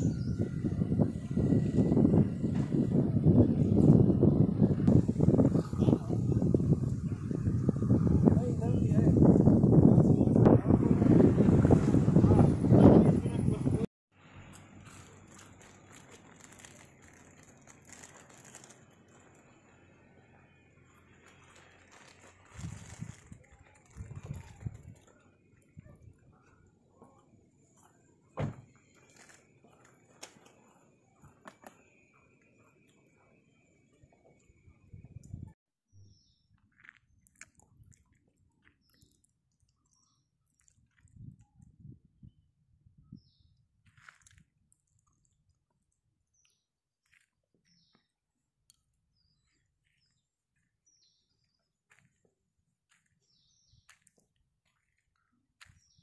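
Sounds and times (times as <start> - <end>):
handling thump: 28.4 - 28.7.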